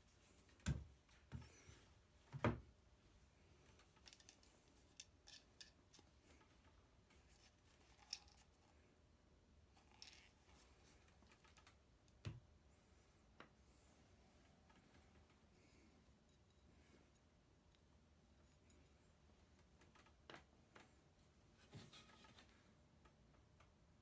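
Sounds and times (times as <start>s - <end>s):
faint clicks and rustling: 9.7s - 12.3s, 14.3s - 23.8s.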